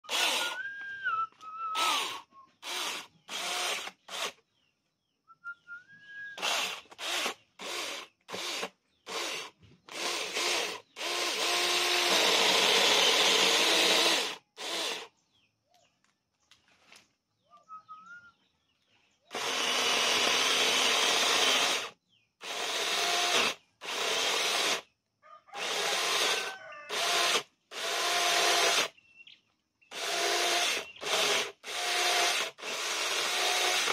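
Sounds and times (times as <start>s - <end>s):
electric chainsaw cutting log: 0.0s - 0.7s, 1.8s - 4.4s, 6.4s - 15.1s, 19.3s - 24.9s, 25.6s - 28.9s, 29.9s - 33.9s.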